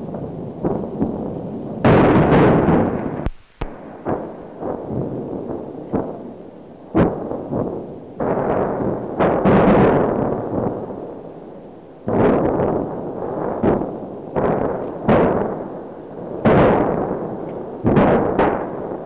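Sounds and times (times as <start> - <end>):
sharp explosion bangs: 0.0 - 6.2, 16.4 - 19.0
heavy rumbling blasts: 0.0 - 19.0.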